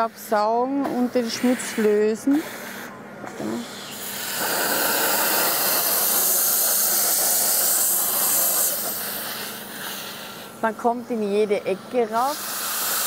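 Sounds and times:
steam cleaner nozzle hissing: 3.7 - 10.6, 12.1 - 13.0.

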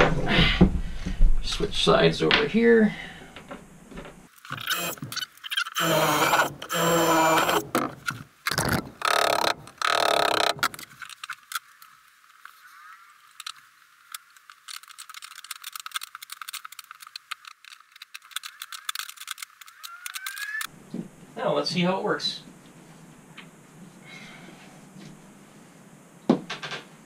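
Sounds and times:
cordless drill running: 4.5 - 5.1, 5.8 - 7.7
ratcheting wrench clicking: 8.5 - 10.9.

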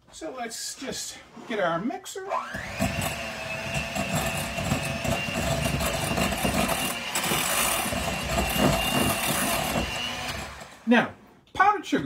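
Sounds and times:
electric hand mixer running: 2.3 - 10.9.

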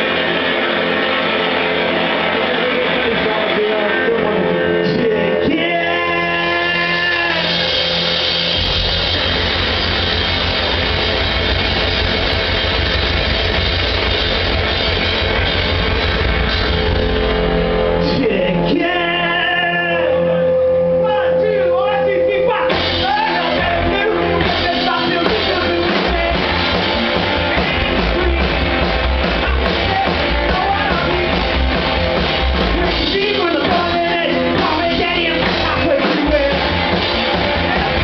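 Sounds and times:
live rock band playing: 0.0 - 38.0
person singing: 2.0 - 8.2, 18.0 - 31.8, 32.6 - 38.0.

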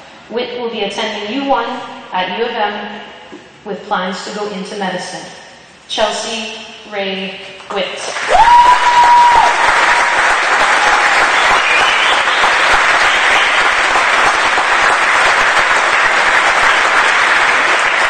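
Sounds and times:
audience applauding: 8.2 - 18.0
sharp rising whistle: 11.2 - 13.6.

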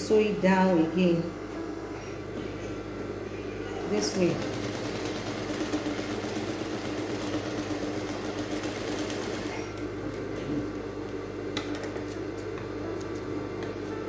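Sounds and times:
sewing machine stitching: 3.8 - 9.8.

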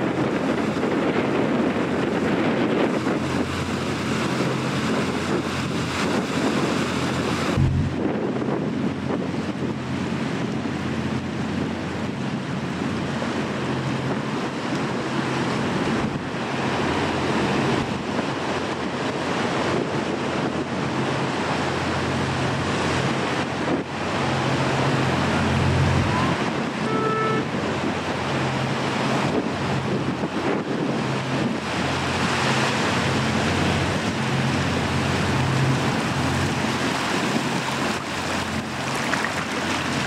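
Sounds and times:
wind buffeting microphone: 0.0 - 40.0
surf breaking over rocks: 1.5 - 9.2, 30.2 - 40.0
ferry engines droning: 1.7 - 9.1, 21.2 - 30.4, 31.1 - 40.0.

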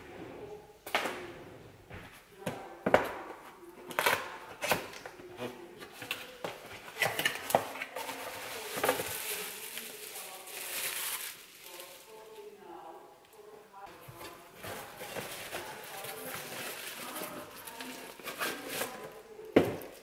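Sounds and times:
bubble wrap crinkling: 5.9 - 12.6, 13.9 - 20.0.

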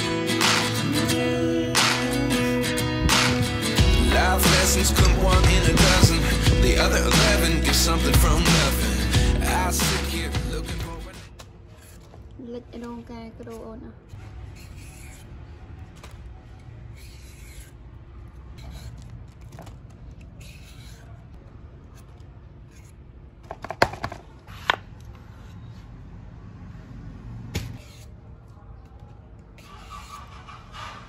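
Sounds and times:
peeler scraping gourd skin: 11.2 - 23.8, 27.8 - 28.6, 29.4 - 31.0.

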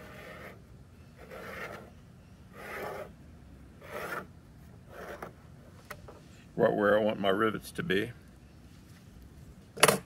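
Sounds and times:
metal tip scratching aluminum: 3.8 - 4.3.

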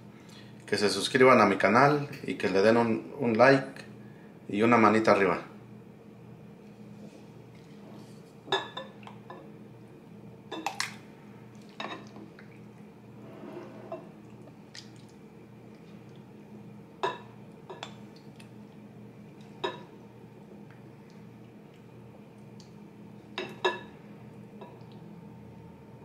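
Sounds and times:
soft wet scraping: 6.6 - 8.4, 11.6 - 15.2.

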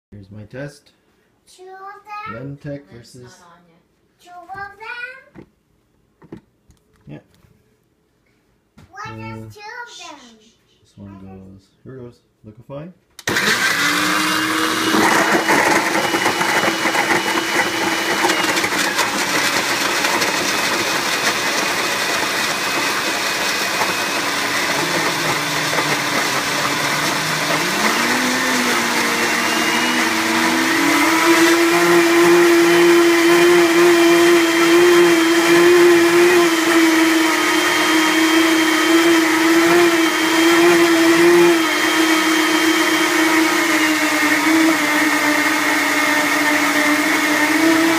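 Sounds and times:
blenders whining: 13.2 - 47.9.

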